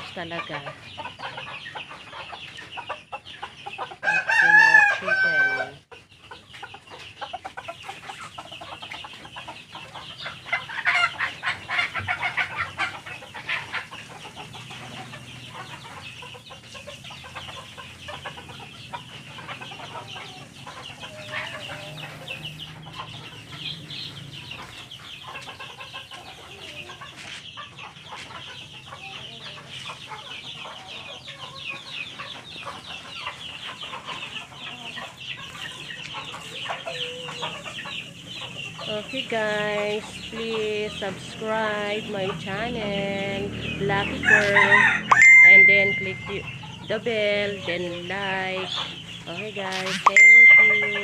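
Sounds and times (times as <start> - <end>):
chickens clucking: 0.0 - 51.0
high-pitched chirring: 45.0 - 46.5, 50.0 - 51.0.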